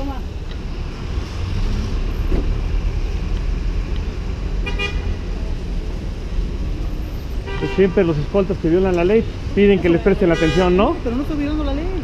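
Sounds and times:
street traffic rumble: 0.0s - 12.0s
car horn toot: 4.6s - 5.1s, 7.4s - 8.0s, 10.3s - 10.8s.

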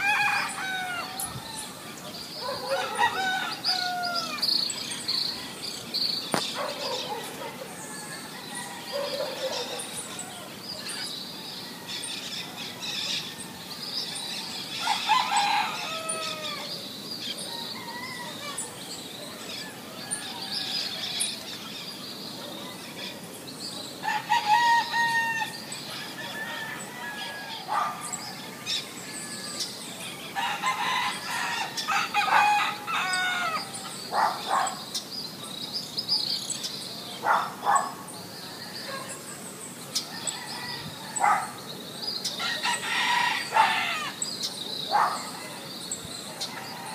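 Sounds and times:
rooster crowing: 0.0s - 4.5s, 7.7s - 10.6s, 14.7s - 16.7s, 24.0s - 29.6s, 30.4s - 33.8s, 42.4s - 44.2s
birds chirping: 0.0s - 46.9s.

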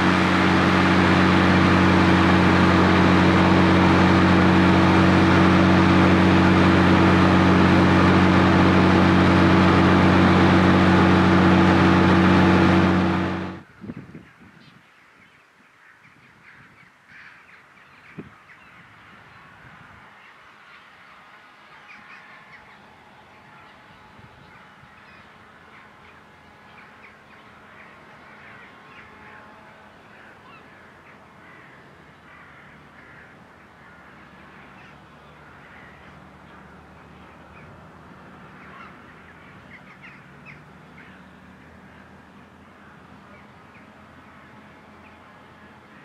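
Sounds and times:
tractor diesel engine drone: 0.0s - 13.7s, 19.2s - 46.0s
birds calling: 38.5s - 44.4s.

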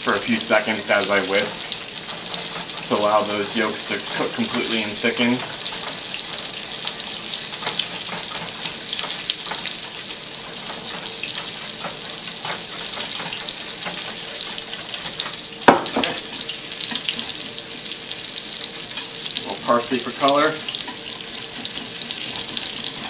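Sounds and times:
fish fillet sizzling in a pan: 0.0s - 23.0s
whisk clicking and scraping in saucepan: 0.0s - 23.0s
saucepan knock: 15.7s - 16.2s.

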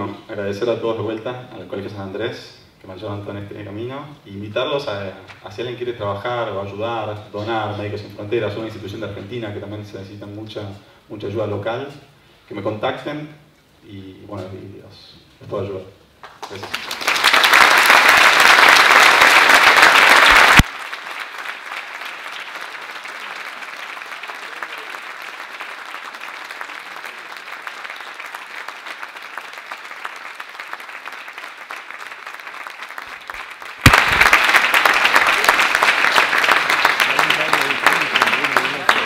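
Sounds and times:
audience applauding: 16.2s - 39.0s.

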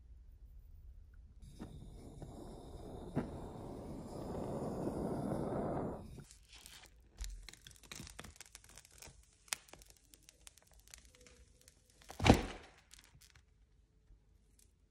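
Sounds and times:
thin strip crinkling and tearing: 6.2s - 13.6s.

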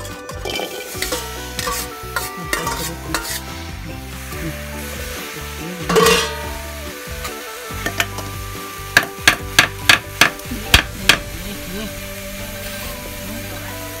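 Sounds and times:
spoon clattering against wok: 0.0s - 3.4s, 5.9s - 6.5s, 7.8s - 8.3s, 9.0s - 11.2s
metal spoon scraping a wok: 0.0s - 4.3s, 5.9s - 6.5s
light sizzle: 0.0s - 14.0s.

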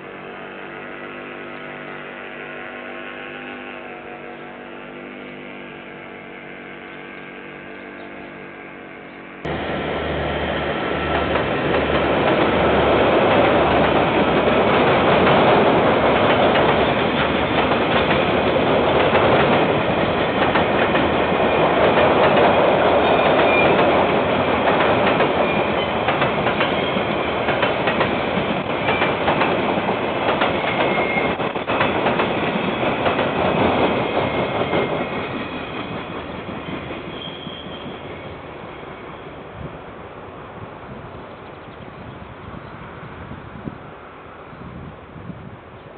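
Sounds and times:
freight train wheels clattering: 10.5s - 38.9s
train wheel squeals: 16.2s - 39.8s.

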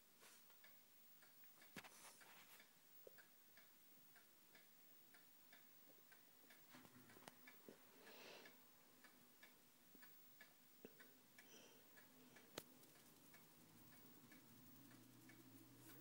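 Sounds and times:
faint regular ticking: 0.4s - 16.0s.

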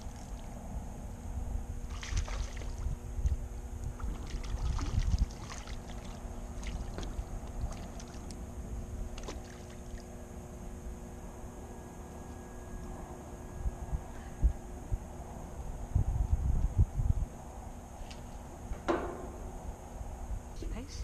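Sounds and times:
wind rumbling on microphone: 0.0s - 10.2s, 12.4s - 21.0s
faint steady hum: 0.0s - 21.0s
fish thrashing and splashing: 1.9s - 2.8s, 3.9s - 8.4s, 9.1s - 10.1s
lapping water: 3.9s - 8.4s.

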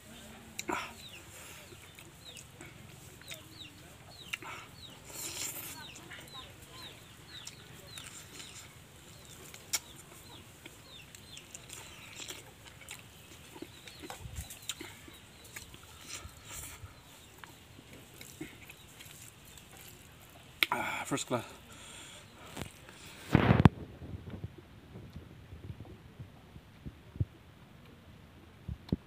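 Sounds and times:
birds chirping: 0.0s - 23.3s
person chewing food: 0.5s - 20.8s.

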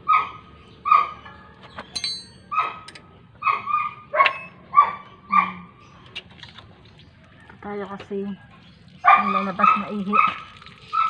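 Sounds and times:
dog barking: 0.0s - 1.3s, 2.5s - 5.7s, 9.0s - 11.0s
high metallic clink: 1.9s - 3.0s.

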